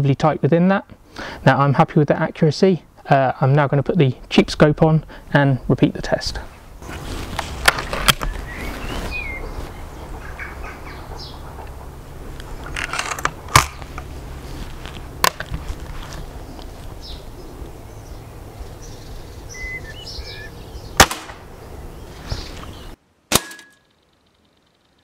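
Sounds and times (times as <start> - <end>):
outdoor background noise: 0.0 - 25.0
birds chirping: 7.9 - 12.8, 13.4 - 23.0
air rifle shot: 21.0 - 21.5, 23.3 - 23.8.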